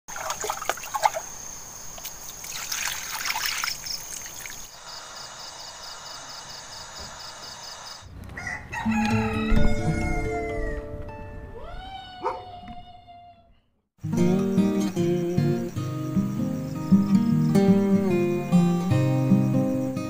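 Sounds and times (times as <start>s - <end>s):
water splashing into a basin: 0.1s - 4.7s.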